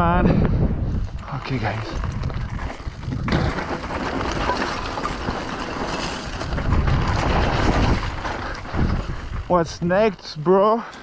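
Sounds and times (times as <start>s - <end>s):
wind rumbling on microphone: 0.0s - 10.2s
bike tyres rolling over gravel: 0.9s - 10.6s.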